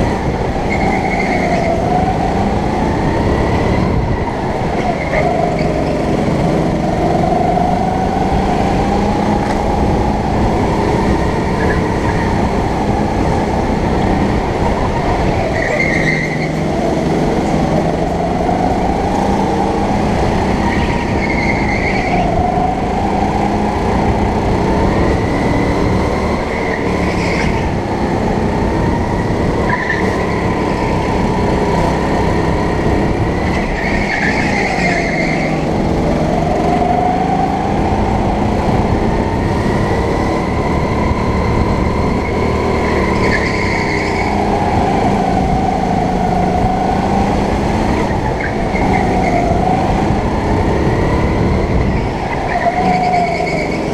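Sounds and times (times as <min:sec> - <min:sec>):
go-kart engine running hard: 0:00.0 - 0:53.9
tyre squeal: 0:15.3 - 0:16.7, 0:20.7 - 0:22.4, 0:33.4 - 0:35.7, 0:42.2 - 0:44.4, 0:51.8 - 0:53.9.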